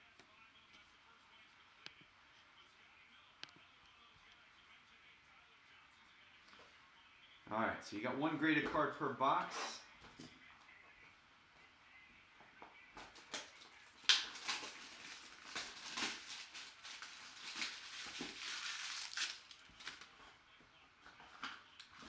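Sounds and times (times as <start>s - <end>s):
plastic wrap tearing and crinkling: 13.1s - 20.1s.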